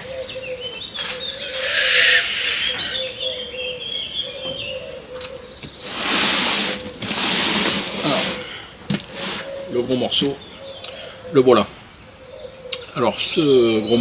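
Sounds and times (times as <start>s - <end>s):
birds chirping: 0.0s - 14.0s
cardboard box scraping and rustling: 5.8s - 9.6s.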